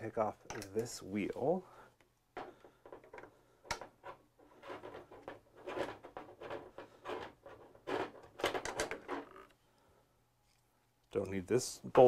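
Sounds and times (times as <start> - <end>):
clicks knocks and rustles of hands: 2.0 - 9.6.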